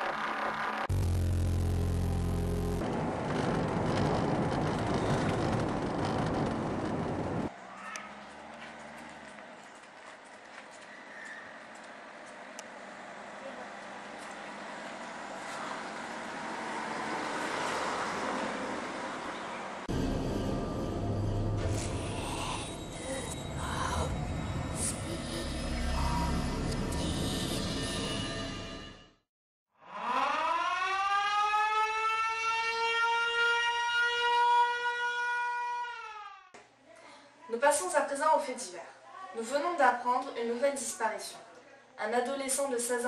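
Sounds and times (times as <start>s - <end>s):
siren wailing: 0.9s - 2.8s, 29.8s - 36.5s
deep rumble: 0.9s - 7.5s, 19.9s - 28.5s.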